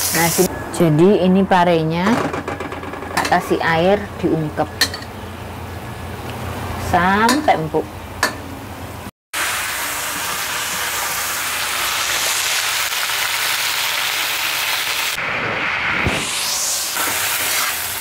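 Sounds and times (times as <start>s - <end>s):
greens sizzling in a wok: 0.0s - 0.5s, 9.4s - 15.8s, 16.5s - 18.0s.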